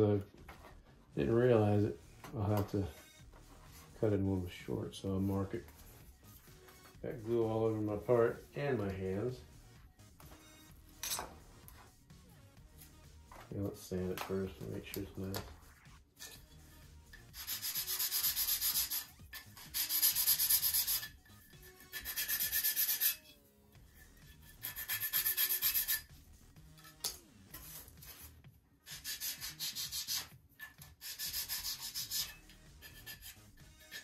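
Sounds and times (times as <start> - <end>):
sandpaper sanding wood: 17.3 - 23.3, 24.1 - 26.1, 27.5 - 34.0.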